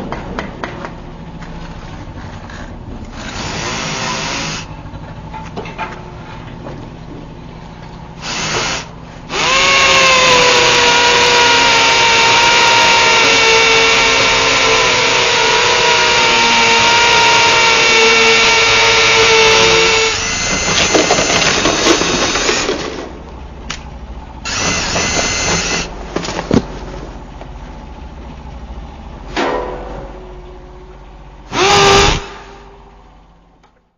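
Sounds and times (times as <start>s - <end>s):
drill biting into concrete: 3.1s - 4.7s, 8.2s - 22.8s, 24.5s - 25.9s, 31.5s - 32.5s
power drill whining: 3.1s - 4.7s, 8.2s - 22.8s, 24.5s - 25.9s, 31.5s - 32.6s.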